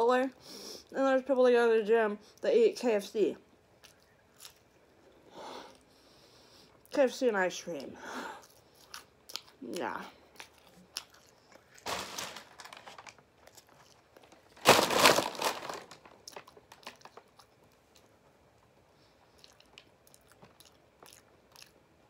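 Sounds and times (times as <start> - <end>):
quiet chewing: 3.8 - 7.0, 7.6 - 11.8, 13.0 - 14.5, 16.2 - 22.0
paper bag crinkling: 11.7 - 17.4.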